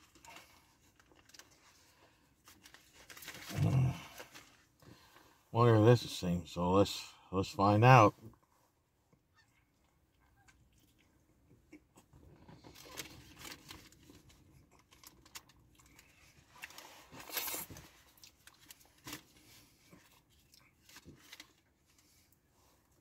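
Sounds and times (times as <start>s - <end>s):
paper wrapper crinkling and tearing: 0.0s - 4.6s, 12.6s - 21.7s.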